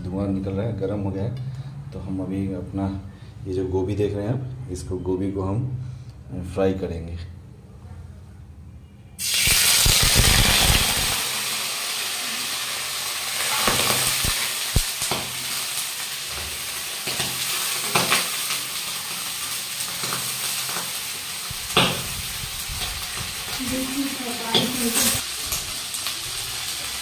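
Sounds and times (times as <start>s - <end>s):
vegetables sizzling in hot oil: 9.2s - 27.0s.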